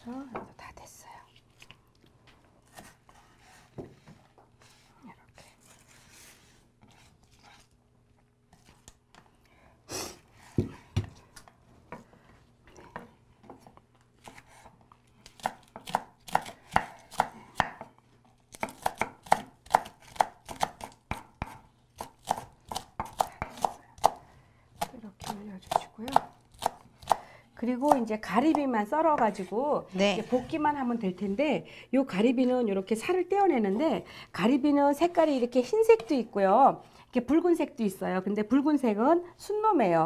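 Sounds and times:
knife chopping on wooden board: 0:15.4 - 0:17.9, 0:18.5 - 0:24.2, 0:24.8 - 0:29.3.

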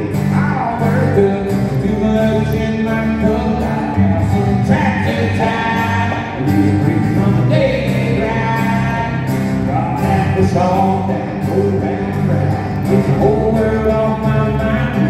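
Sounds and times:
live country band playing: 0:00.0 - 0:15.0
man singing: 0:00.0 - 0:15.0.

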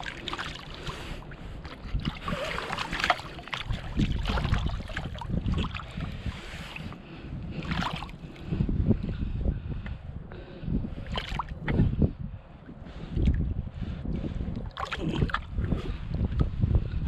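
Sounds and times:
river water splashing around net: 0:00.0 - 0:06.0
wind rumble on microphone: 0:00.0 - 0:17.0.

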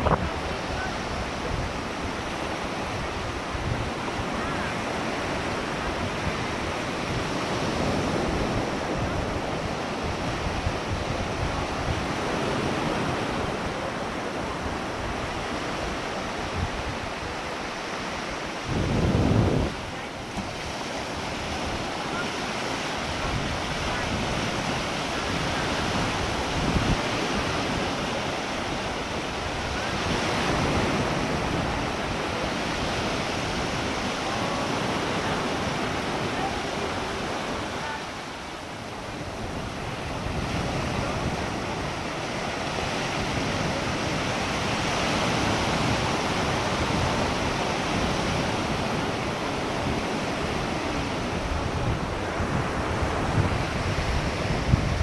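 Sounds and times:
ocean surf washing ashore: 0:00.0 - 0:55.0
wind buffeting microphone: 0:00.0 - 0:55.0.

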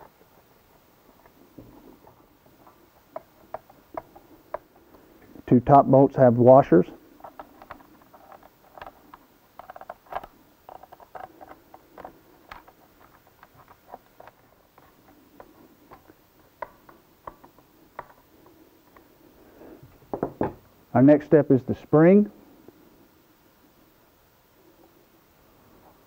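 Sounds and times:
screwdriver and bolts clicking on plastic: 0:07.2 - 0:18.2.

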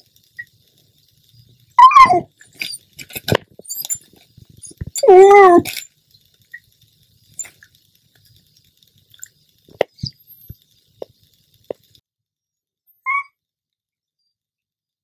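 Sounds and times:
small dog whining: 0:01.8 - 0:02.8, 0:04.6 - 0:05.9, 0:13.0 - 0:13.3.

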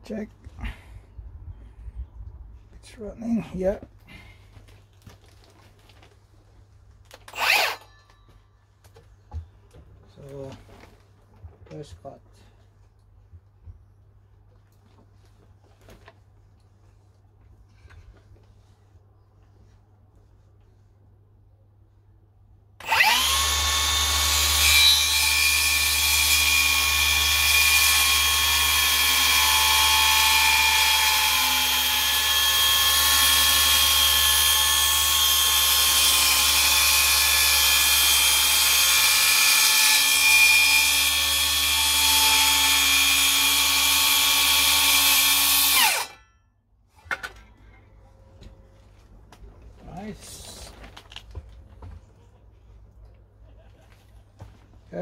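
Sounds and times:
circular saw cutting timber: 0:07.3 - 0:08.0, 0:22.8 - 0:46.2.

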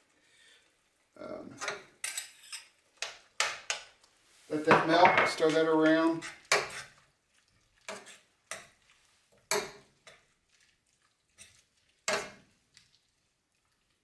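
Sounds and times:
metal spoon clinking in a pan: 0:01.6 - 0:02.8.

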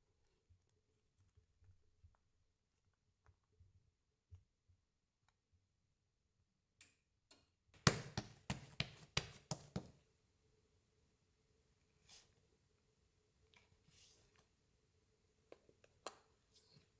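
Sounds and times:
sharp taps of dough pressed: 0:07.8 - 0:10.0.

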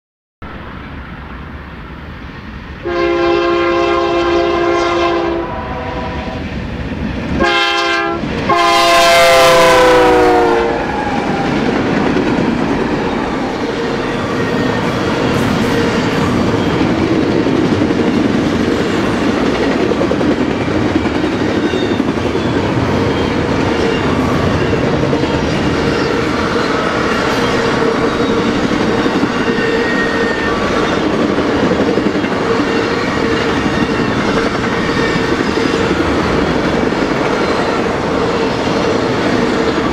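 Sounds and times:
freight train rolling rumble: 0:00.4 - 0:39.9
locomotive air horn blasts: 0:02.8 - 0:06.4, 0:07.4 - 0:10.8.

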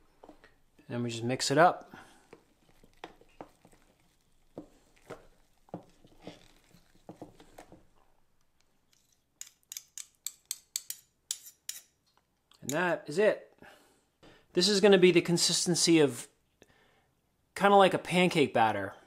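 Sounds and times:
spoon scraping glass container: 0:02.6 - 0:07.4.

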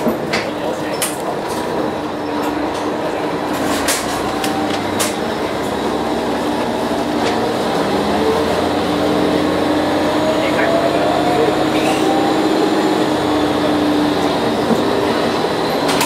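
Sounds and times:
diesel train engine: 0:00.0 - 0:16.0
rising whine: 0:04.4 - 0:15.8.

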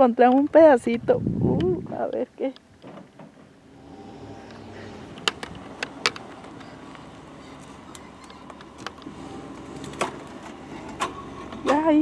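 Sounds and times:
truck engine running: 0:03.6 - 0:12.0.

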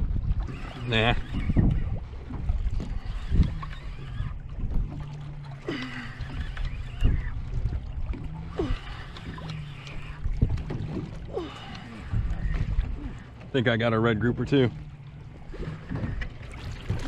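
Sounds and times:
wind on microphone: 0:00.0 - 0:13.5
low hum: 0:00.0 - 0:17.0
water sloshing against hull: 0:00.0 - 0:17.0.

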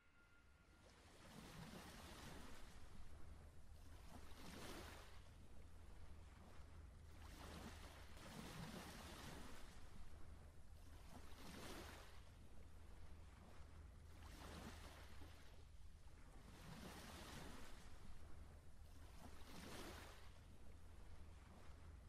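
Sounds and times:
low hum: 0:00.0 - 0:04.4.

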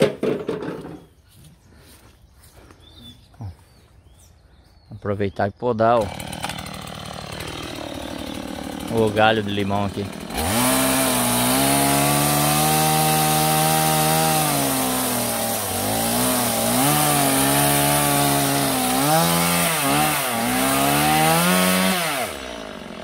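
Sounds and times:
chainsaw cutting wood: 0:06.0 - 0:23.0.

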